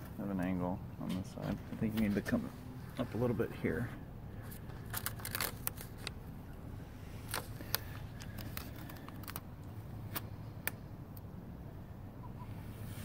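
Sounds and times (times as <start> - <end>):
steady low hum: 0.0 - 13.0
tape pulled off roll crackling: 4.6 - 6.2, 7.2 - 10.8.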